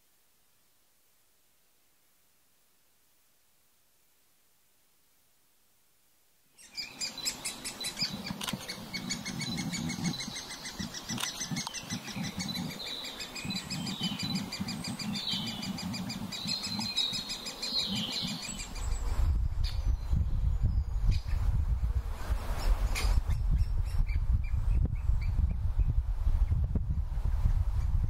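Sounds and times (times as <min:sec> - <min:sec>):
woodpeckers chattering: 0:06.6 - 0:19.0.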